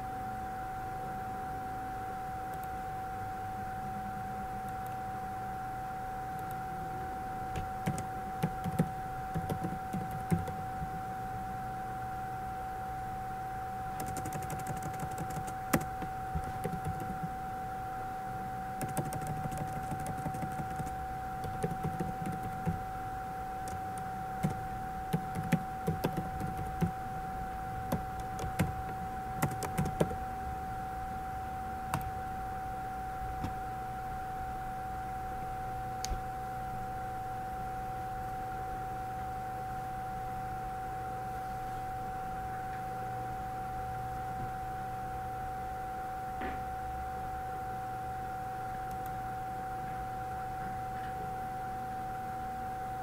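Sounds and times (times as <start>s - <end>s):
high-pitched electrical hum: 0.0s - 53.0s
typing on keyboard: 7.6s - 11.0s, 14.0s - 17.3s, 18.8s - 22.8s, 23.6s - 27.0s, 27.9s - 30.2s.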